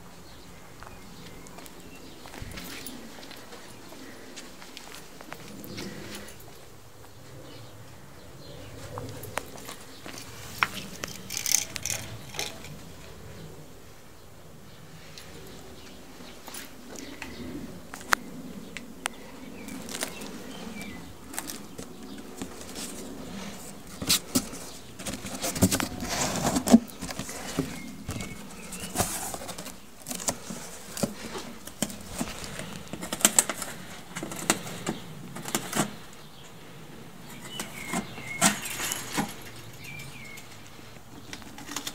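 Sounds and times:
handling clicks taps and rustles: 9.2s - 12.9s, 18.8s - 36.2s.

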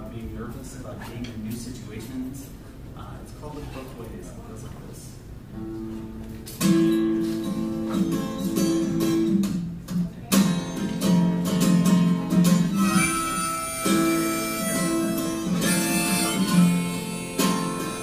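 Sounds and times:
acoustic guitar strumming chords: 5.6s - 18.0s.

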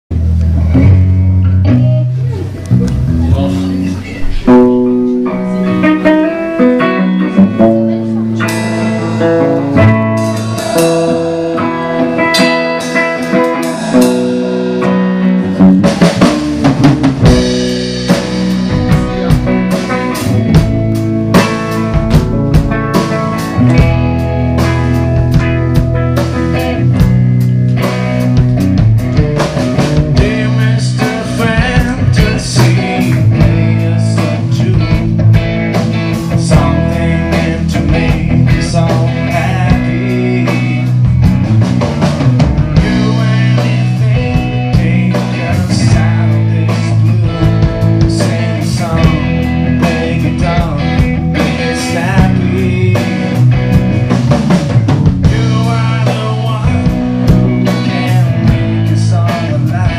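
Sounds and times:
drum kit: 0.1s - 59.9s
electric guitar: 0.1s - 59.9s
man singing: 3.2s - 15.0s, 17.3s - 21.7s, 29.8s - 41.3s, 42.6s - 54.1s, 55.2s - 59.9s.

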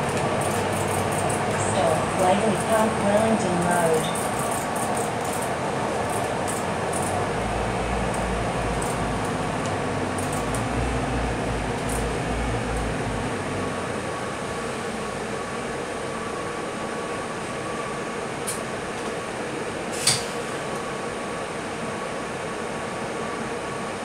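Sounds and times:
road and tyre noise: 0.0s - 15.7s
bus diesel engine running: 0.0s - 16.1s
low drone: 6.2s - 15.4s.

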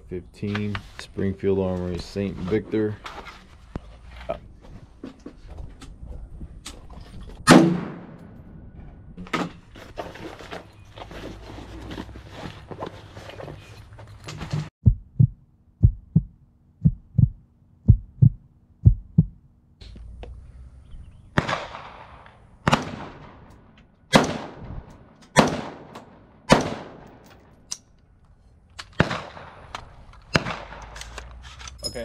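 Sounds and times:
rifle shots: 7.5s - 8.2s, 21.4s - 27.2s, 28.9s - 31.0s
muffled low thumps: 14.8s - 20.4s.

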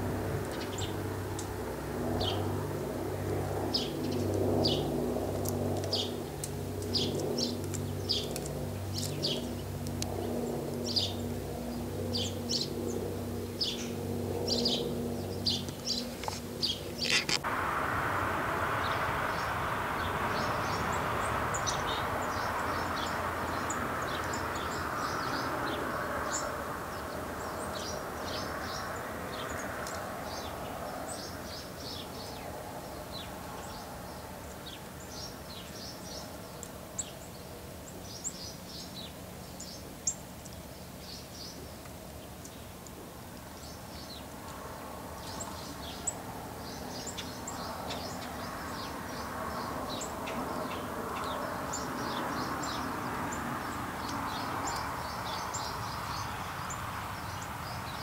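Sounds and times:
steady low hum: 0.0s - 28.4s
broad rushing noise: 0.0s - 33.5s
chickadees chirping: 14.5s - 28.9s.

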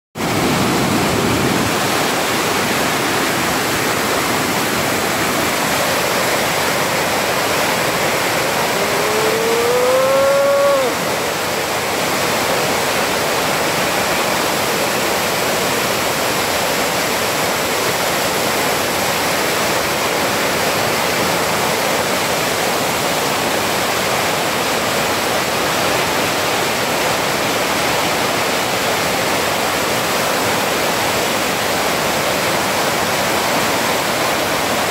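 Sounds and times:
water rushing over rocks: 0.2s - 34.9s
drawn-out rising note: 8.2s - 11.2s.

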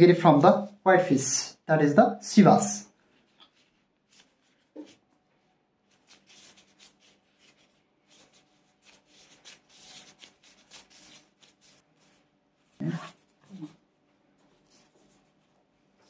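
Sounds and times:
soft rubbing and light ticks: 3.0s - 5.0s.

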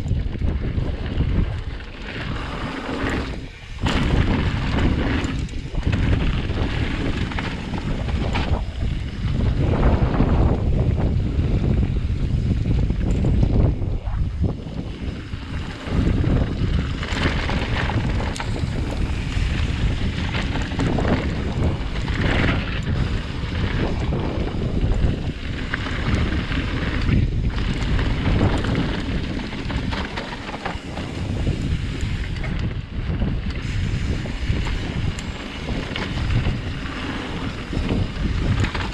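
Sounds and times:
bike rumbling and rattling: 0.0s - 38.9s
wind buffeting microphone: 0.0s - 38.9s.

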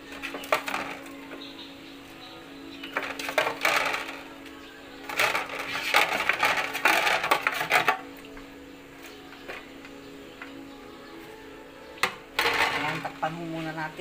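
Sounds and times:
spatula scraping a pan: 5.0s - 8.1s.

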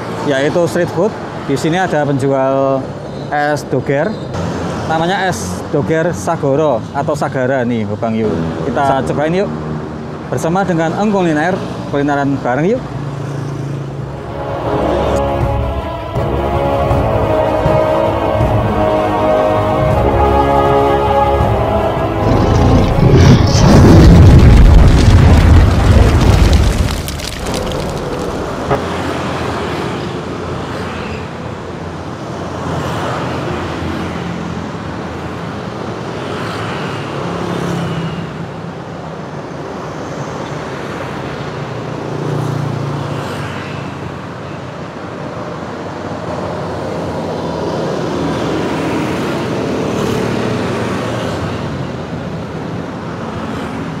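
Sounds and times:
cars and motorbikes passing: 0.0s - 54.0s
loud background music: 14.1s - 23.4s.

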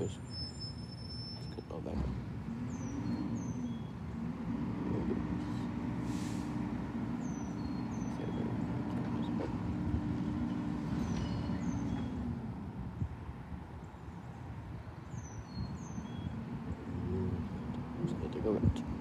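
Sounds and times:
birds chirping faintly: 0.0s - 13.1s, 13.7s - 19.0s
garbage truck engine revving: 1.9s - 12.6s
short hiss: 6.0s - 6.6s.

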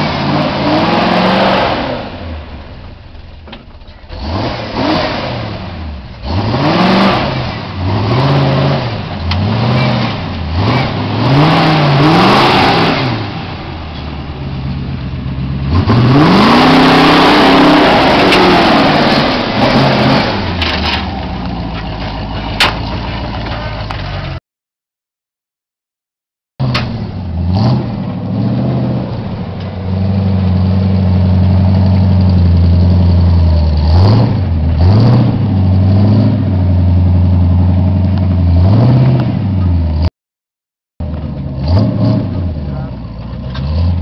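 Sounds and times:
engine revving hard: 0.0s - 2.4s, 4.1s - 13.6s, 15.7s - 20.7s, 27.4s - 29.2s, 33.8s - 36.6s, 38.5s - 39.5s, 41.6s - 42.9s.

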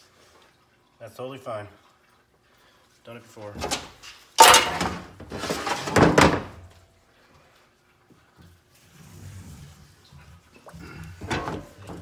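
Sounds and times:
metal parts clattering on workbench: 3.7s - 6.6s.

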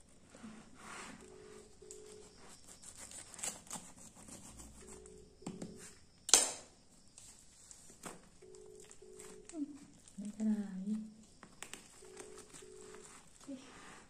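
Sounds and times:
knife scratching fruit rind: 2.0s - 5.1s.

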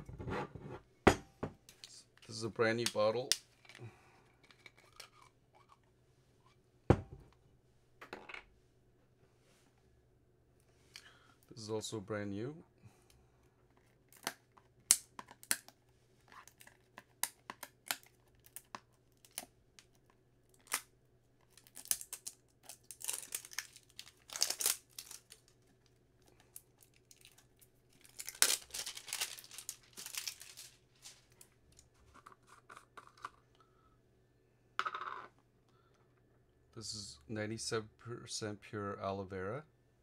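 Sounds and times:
jar seal tearing and crinkling: 4.4s - 5.8s, 13.8s - 25.8s, 26.4s - 30.8s.

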